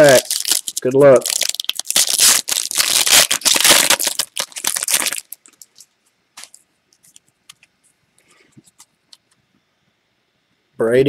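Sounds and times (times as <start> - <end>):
foil wrapper crinkling: 0.0 - 7.6.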